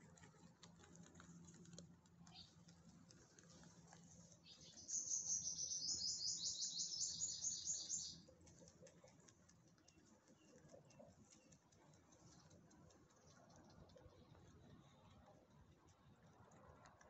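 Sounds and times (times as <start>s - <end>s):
rabbits chewing grass: 0.0s - 17.0s
bird trilling: 4.5s - 8.2s.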